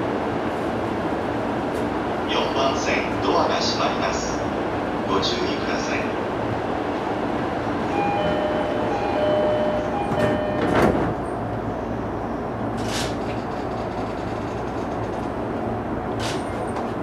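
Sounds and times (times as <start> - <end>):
stopped train hum: 0.0 - 17.0
two-tone door chime: 7.9 - 11.0
sliding doors thudding shut: 10.0 - 11.2.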